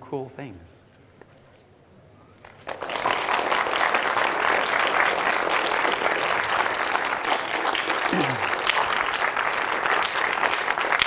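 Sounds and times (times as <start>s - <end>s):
audience applause: 2.4s - 11.0s.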